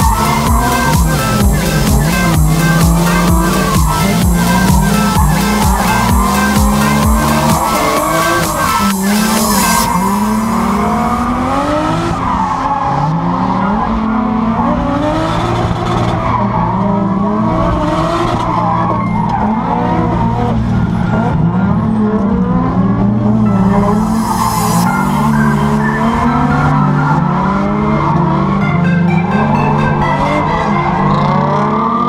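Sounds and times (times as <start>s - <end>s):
car engine revving: 0.0s - 32.0s.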